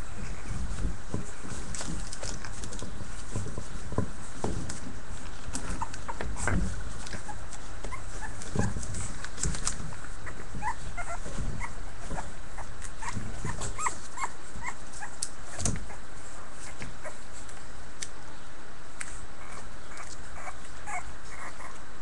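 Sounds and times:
claws scrabbling on newspaper: 0.3 - 11.6
puppies whimpering and squeaking: 5.3 - 17.5, 19.4 - 22.0.

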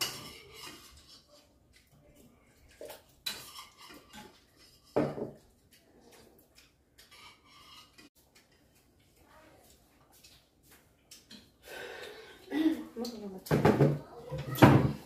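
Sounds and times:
utensils clinking on ceramic bowls: 0.0 - 10.4.

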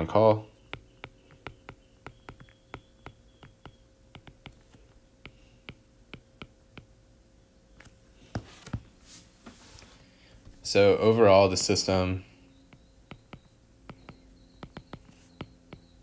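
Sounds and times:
faint steady hum: 0.0 - 16.0
stylus tapping on glass screen: 0.7 - 4.6, 5.2 - 6.9, 12.7 - 16.0.

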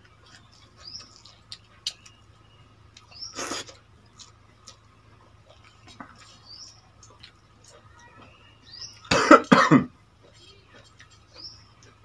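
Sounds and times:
chewing: 0.0 - 9.2, 9.9 - 12.0.

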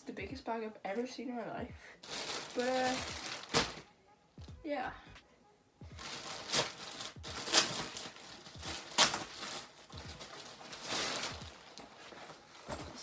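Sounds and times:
plastic packaging crinkling: 2.0 - 3.8, 6.0 - 13.0.

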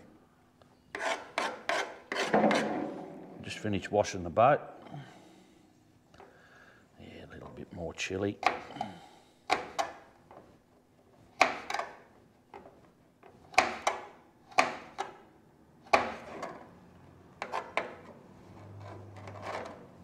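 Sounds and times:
knife chopping on wooden board: 1.0 - 2.9, 11.3 - 12.0, 13.5 - 15.0, 15.9 - 16.3.

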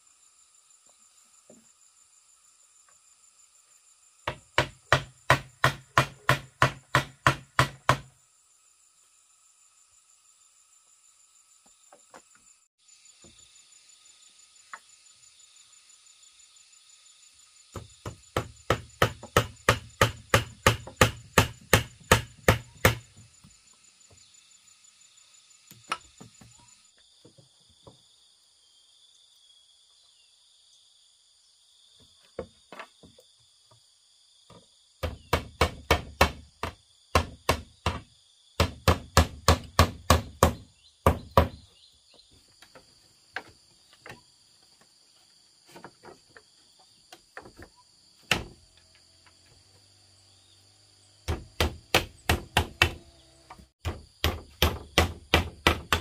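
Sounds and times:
high insect buzz: 0.0 - 56.0
hand tool striking bamboo: 4.3 - 8.1, 17.8 - 23.0, 35.0 - 38.0, 38.6 - 41.6, 47.3 - 48.6, 51.3 - 53.0, 53.8 - 56.0.

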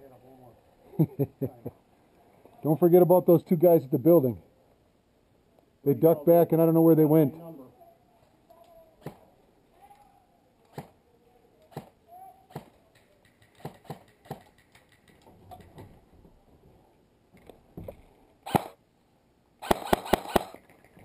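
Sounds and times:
airsoft gunshots: 18.4 - 18.8, 19.6 - 20.6.

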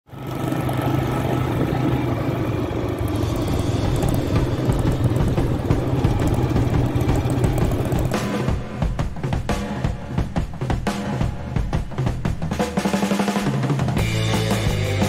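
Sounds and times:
motorcycle engine running: 0.1 - 9.6.

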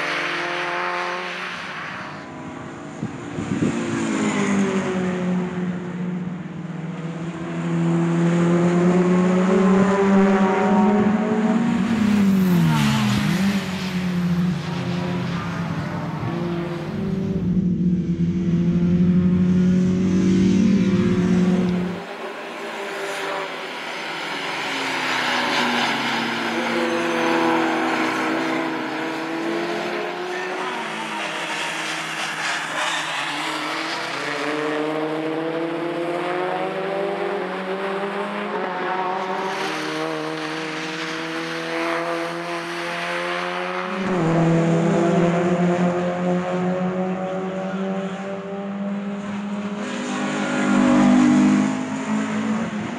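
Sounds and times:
racing cars revving past: 0.0 - 52.9.

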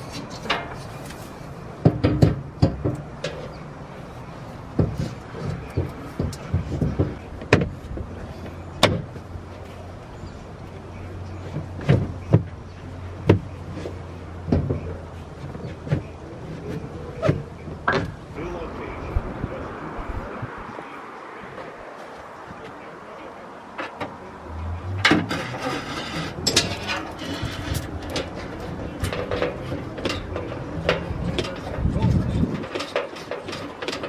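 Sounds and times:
metal knocks and clunks: 0.0 - 1.1, 1.8 - 3.8, 4.6 - 9.3, 11.3 - 18.4, 23.8 - 34.0.

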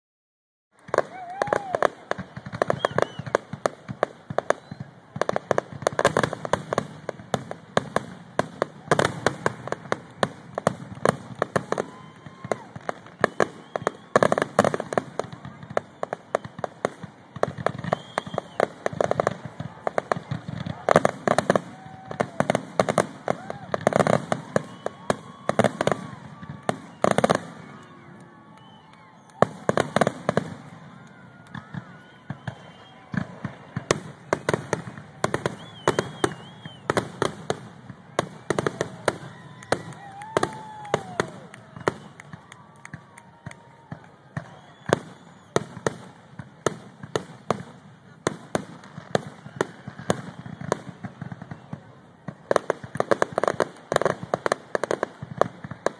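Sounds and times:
fireworks bursting: 0.7 - 55.9
spectators talking: 14.6 - 45.5.

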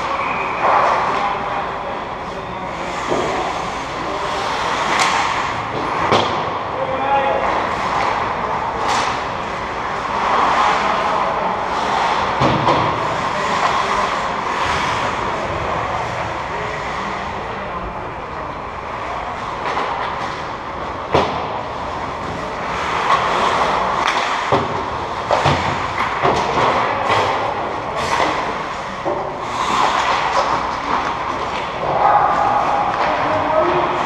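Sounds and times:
hockey sticks and puck clacking: 0.0 - 15.8, 19.3 - 34.0
skate blades scraping on ice: 29.4 - 31.5.

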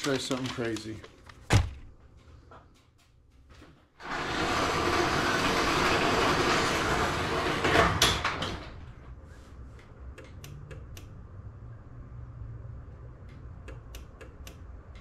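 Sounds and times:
garage door opener running: 4.0 - 9.0
door rolling along tracks: 4.0 - 9.1.

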